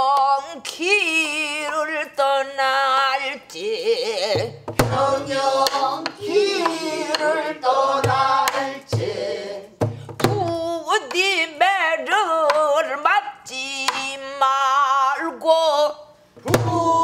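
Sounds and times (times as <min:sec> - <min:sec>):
woman singing with wide vibrato: 0:00.0 - 0:09.3, 0:10.2 - 0:17.0
drumstick strikes: 0:04.5 - 0:07.3, 0:09.8 - 0:11.2.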